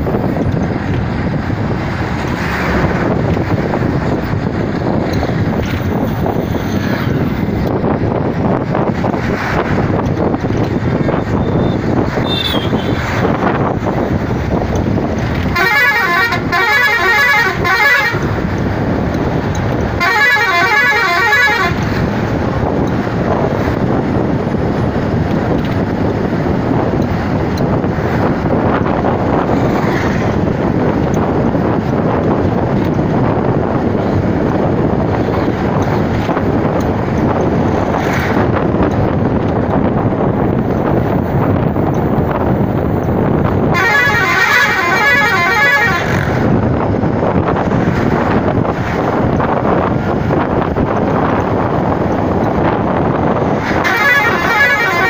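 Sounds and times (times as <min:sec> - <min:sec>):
road and wind noise: 0:00.0 - 0:55.0
vehicle rumble: 0:00.0 - 0:55.0
warbling vehicle horn: 0:11.3 - 0:13.1, 0:15.4 - 0:18.4, 0:19.9 - 0:22.0, 0:43.6 - 0:46.4, 0:53.8 - 0:55.0.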